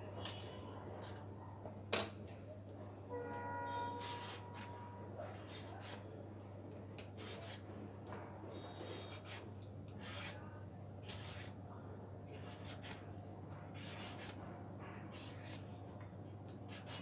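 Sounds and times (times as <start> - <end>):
peeler rasping on banana skin: 13.8 - 14.4, 16.5 - 17.0.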